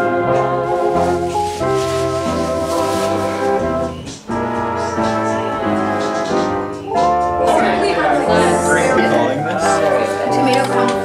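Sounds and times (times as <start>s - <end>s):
instrumental background music: 0.0s - 11.0s.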